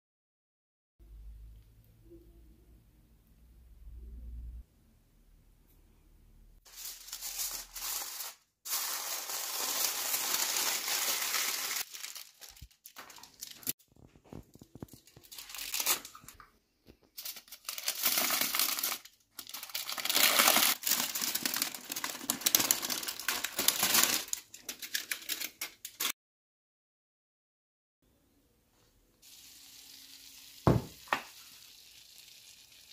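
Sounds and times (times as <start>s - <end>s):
aluminium foil crinkling: 6.7s - 26.1s.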